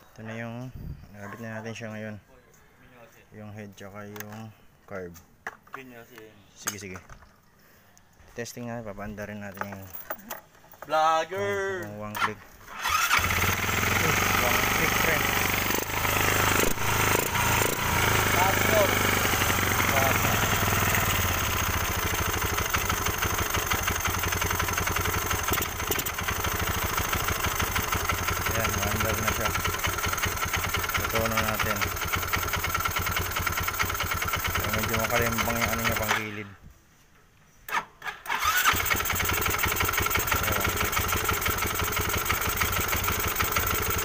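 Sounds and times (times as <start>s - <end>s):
scooter engine idling: 12.8s - 36.3s, 38.4s - 44.0s.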